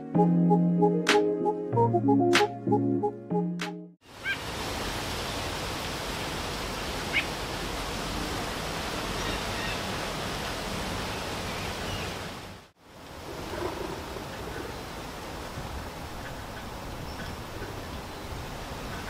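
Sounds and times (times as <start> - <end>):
steady rain falling: 4.0 - 19.0.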